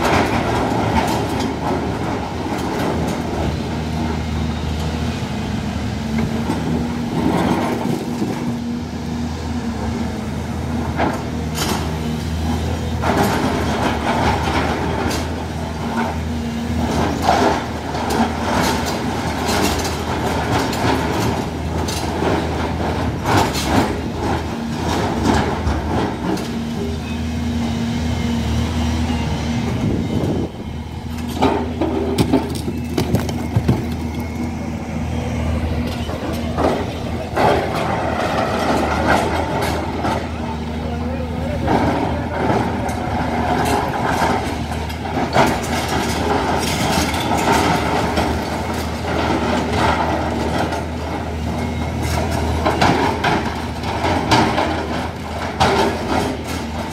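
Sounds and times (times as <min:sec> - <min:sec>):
excavator diesel engine running: 0:00.0 - 0:56.9
bucket clanking on rock: 0:31.4 - 0:34.2.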